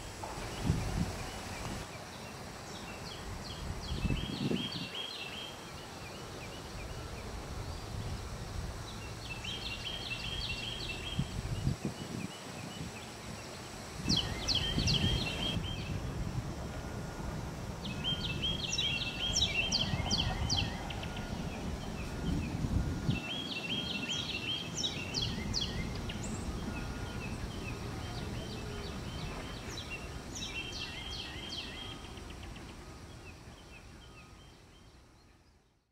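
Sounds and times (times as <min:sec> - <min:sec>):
birds singing ringing phrases: 0:17.8 - 0:32.7.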